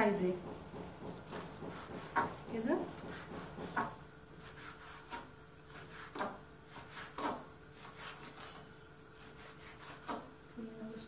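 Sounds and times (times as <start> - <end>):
knife knocking on cutting board: 0.4 - 4.0.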